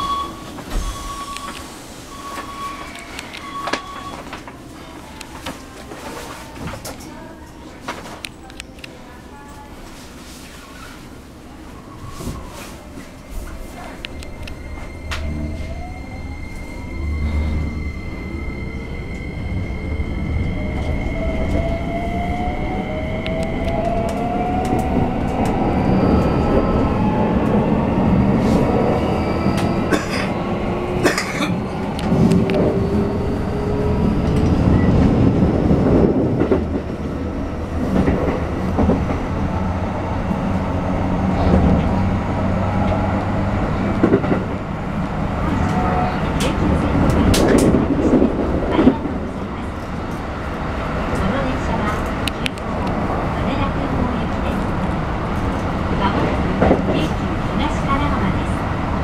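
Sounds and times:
train wheels rumbling: 0:11.8 - 0:59.0
rail joint clacks: 0:45.4 - 0:58.4.

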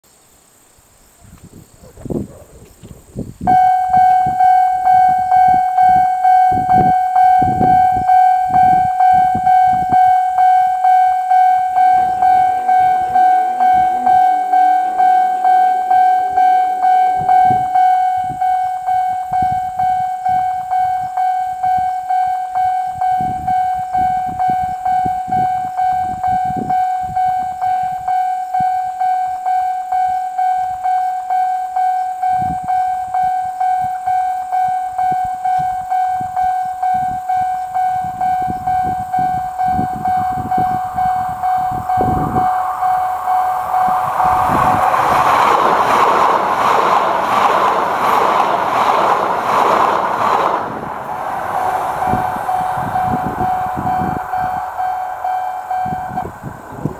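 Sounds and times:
wind rumbling on microphone: 0:00.8 - 0:56.9
level crossing warning bell: 0:03.5 - 0:56.9
approaching train rushing: 0:37.7 - 0:56.9.

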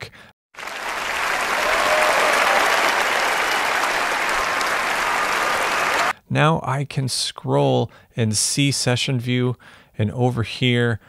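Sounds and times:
audience applauding: 0:00.6 - 0:06.1.

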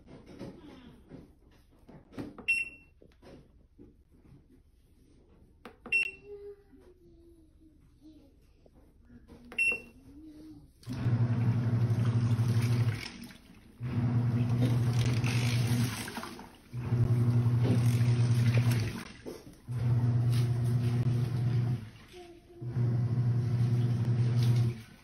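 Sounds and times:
control panel beep: 0:05.9 - 0:06.2, 0:09.6 - 0:09.9
water sloshing: 0:10.8 - 0:19.7, 0:20.4 - 0:22.6
washing machine motor humming: 0:10.8 - 0:25.0.

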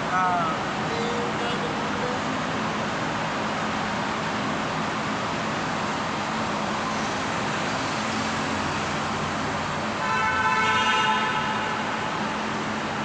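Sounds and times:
road and tyre noise in tunnel: 0:00.0 - 0:13.0
vehicle horn: 0:10.0 - 0:12.0.

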